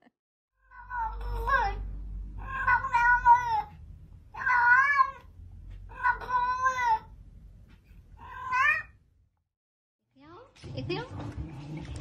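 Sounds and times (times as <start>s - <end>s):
cat meowing: 2.4s - 5.3s, 5.9s - 7.1s, 8.2s - 9.0s.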